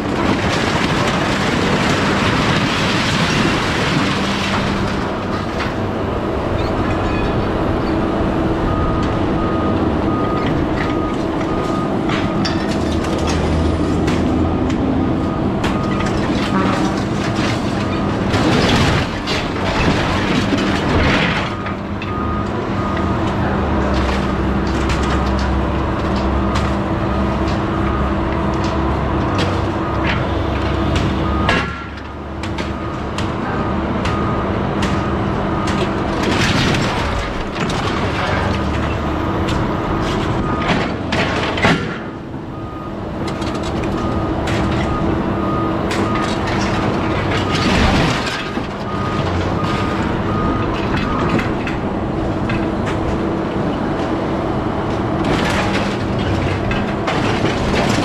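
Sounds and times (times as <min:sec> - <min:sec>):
reversing alarm beeping: 0:05.8 - 0:17.0, 0:21.2 - 0:24.4, 0:25.1 - 0:36.0, 0:42.4 - 0:51.6.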